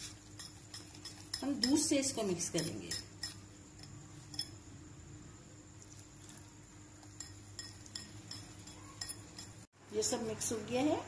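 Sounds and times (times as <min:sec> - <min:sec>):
whisk clinking against glass bowl: 0:00.4 - 0:04.6, 0:07.0 - 0:09.7.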